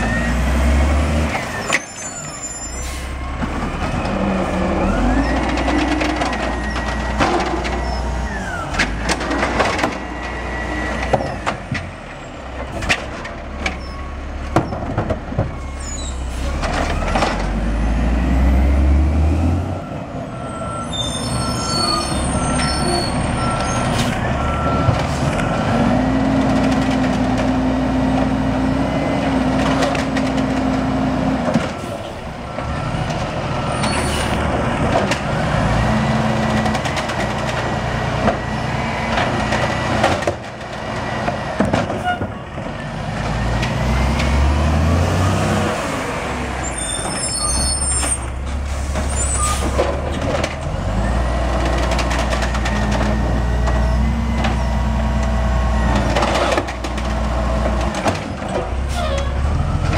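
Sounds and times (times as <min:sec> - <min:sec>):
diesel engine revving: 0:00.0 - 0:14.5, 0:15.2 - 0:59.9
carts banging against hopper: 0:39.1 - 0:44.4.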